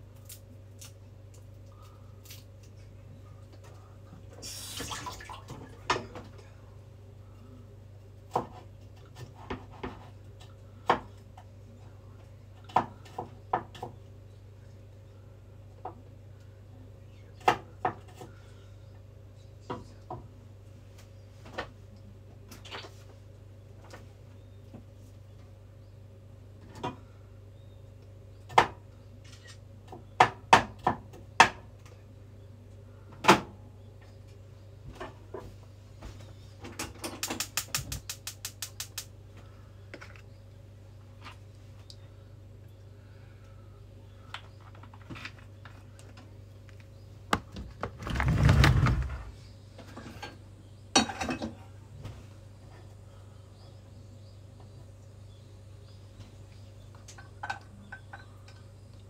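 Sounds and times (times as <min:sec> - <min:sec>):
steady low hum: 0:00.0 - 0:59.0
sharp mechanical clicks: 0:37.2 - 0:39.1.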